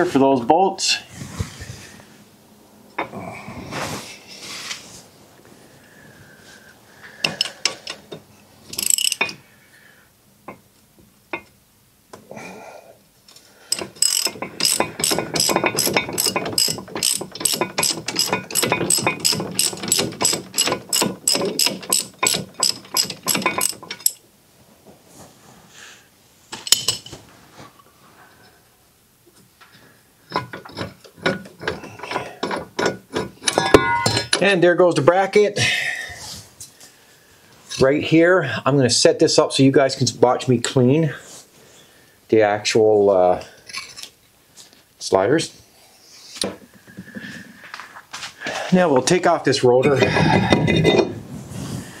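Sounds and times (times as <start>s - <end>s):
metal clinks and knocks: 7.2s - 9.4s, 13.7s - 24.2s, 26.6s - 27.2s, 30.3s - 34.5s, 49.8s - 51.2s
socket ratchet clicking: 8.7s - 9.4s, 13.7s - 24.2s.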